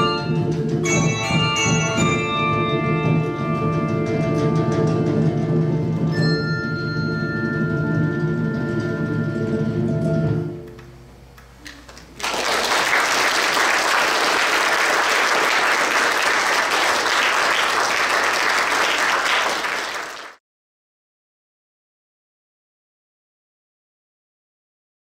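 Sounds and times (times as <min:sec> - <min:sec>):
audience clapping: 0:11.6 - 0:20.4.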